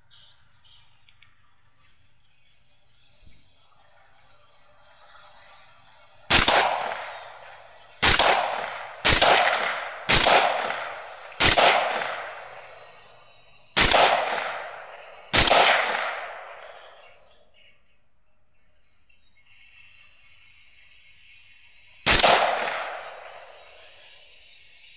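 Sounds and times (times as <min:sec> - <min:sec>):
rifle shots with echo: 0:06.3 - 0:17.2, 0:22.1 - 0:24.1.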